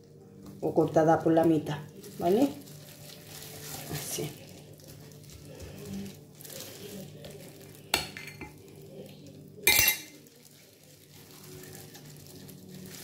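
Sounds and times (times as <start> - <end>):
metal spoon clinking on glass jar: 9.7 - 10.1.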